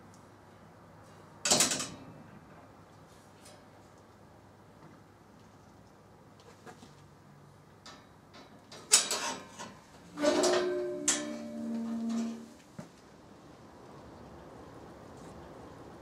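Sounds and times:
sliding bolt clank: 8.8s - 12.6s
metal gate strike and ringing: 8.9s - 12.6s.

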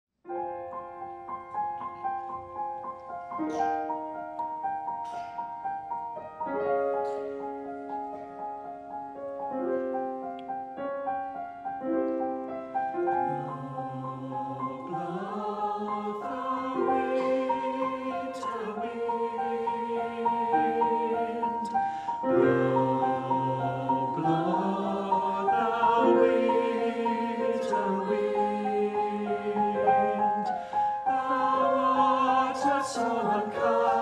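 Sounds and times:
piano: 0.2s - 34.0s
choir singing: 12.2s - 34.0s.

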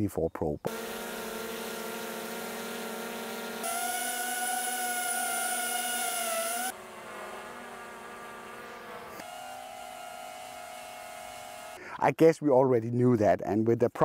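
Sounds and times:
drone propellers whining: 0.7s - 11.8s.

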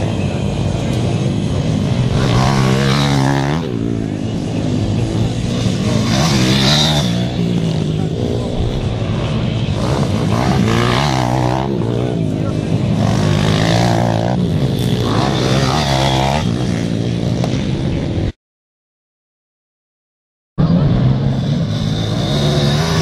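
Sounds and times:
dirt bike engines revving: 0.0s - 18.3s, 20.6s - 23.0s.

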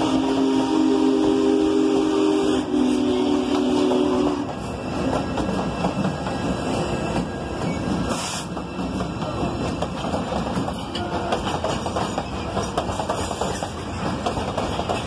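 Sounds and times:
chime train whistle: 0.0s - 5.2s
train wheels clattering on rails: 2.9s - 15.0s.

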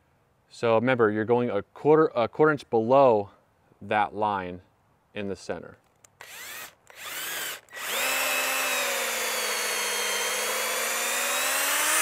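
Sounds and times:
cordless drill boring into wood: 6.2s - 12.0s.

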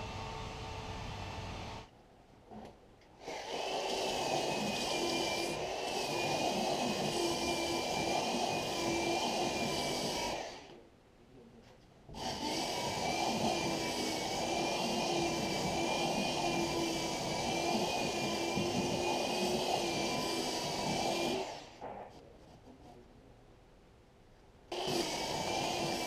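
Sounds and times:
electric sander running: 24.7s - 26.0s.

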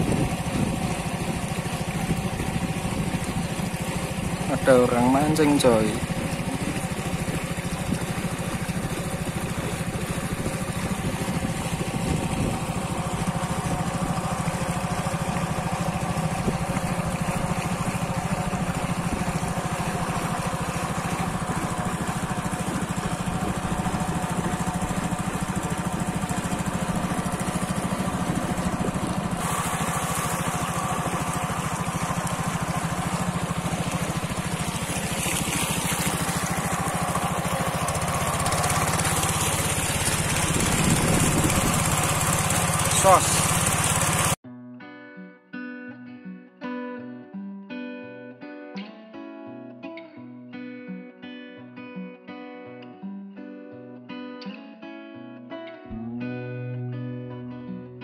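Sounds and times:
boat engine drone: 0.0s - 44.4s, 55.9s - 57.1s.

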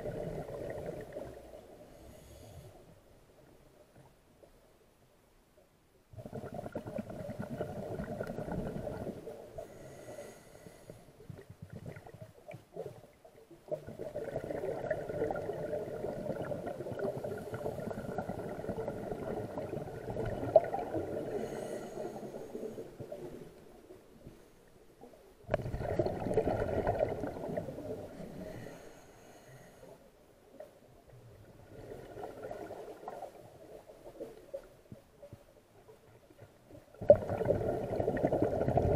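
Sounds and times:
underwater exhaust bubbles: 0.0s - 1.6s, 6.2s - 23.6s, 25.5s - 28.9s, 31.3s - 35.4s, 36.0s - 38.9s.

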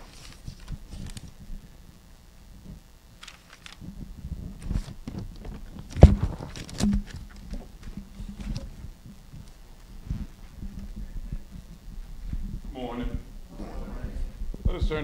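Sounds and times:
microphone handling knocks and rubbing: 3.8s - 13.2s.

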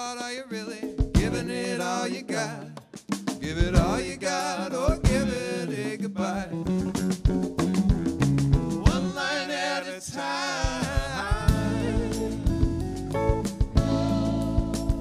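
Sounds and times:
man singing lead vocal: 0.0s - 7.0s, 8.8s - 13.0s
drum kit: 0.8s - 2.0s, 2.8s - 5.6s, 6.4s - 9.5s, 10.5s - 15.0s
electric bass: 1.2s - 1.5s, 3.5s - 4.2s, 5.1s - 5.4s, 6.4s - 9.2s, 10.8s - 15.0s
electric guitars: 6.3s - 9.2s, 11.2s - 15.0s.

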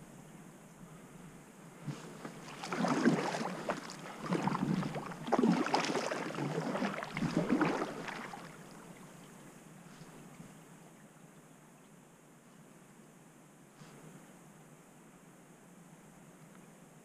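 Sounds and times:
kayak paddle splashing in water: 1.8s - 9.4s.

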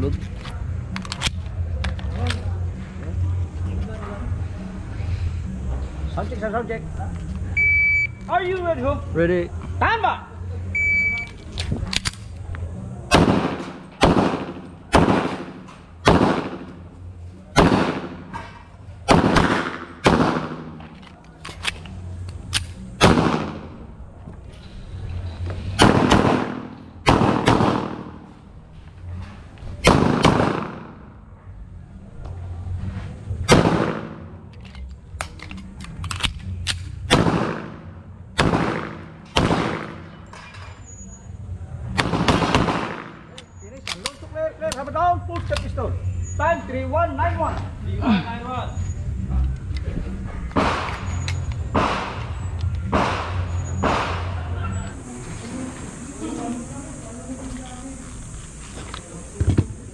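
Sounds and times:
pistol shots: 13.1s - 16.9s, 17.5s - 18.4s, 19.1s - 20.9s, 22.5s - 23.8s, 25.8s - 28.3s, 29.8s - 31.1s, 33.5s - 34.4s, 36.1s - 40.4s, 42.0s - 44.1s, 50.5s - 54.4s.

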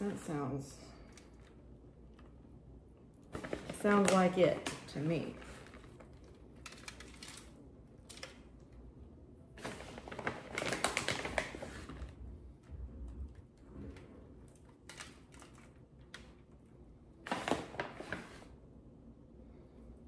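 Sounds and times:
tortilla chips crackling and scraping: 5.4s - 8.6s, 9.6s - 12.2s.

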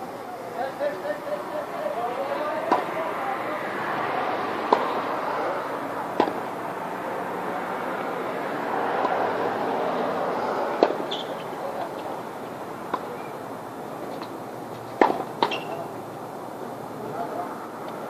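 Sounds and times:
steady background hiss: 0.0s - 18.0s
tennis racket hitting ball: 2.7s - 2.9s, 4.7s - 5.0s, 6.1s - 6.4s, 10.8s - 11.3s, 15.0s - 15.8s.

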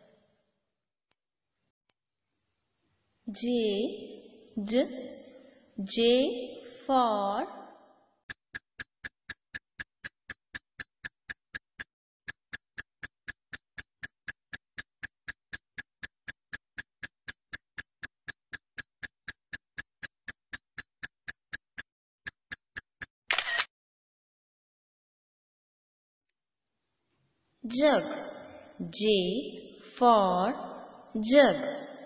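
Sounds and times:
clock ticking: 8.3s - 23.2s.

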